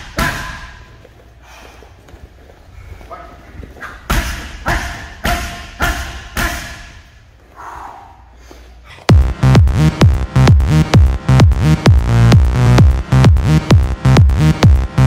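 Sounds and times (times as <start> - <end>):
electronic music: 9.1 - 15.0.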